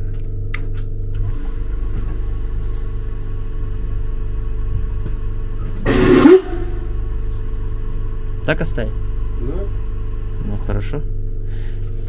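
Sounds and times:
machine hum in railway carriage: 0:00.0 - 0:12.0.

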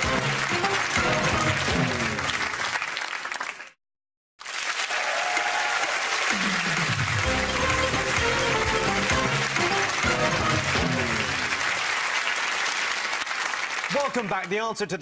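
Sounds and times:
music: 0:00.0 - 0:02.4, 0:06.2 - 0:11.6
audience applauding: 0:00.0 - 0:03.8, 0:04.4 - 0:14.7.

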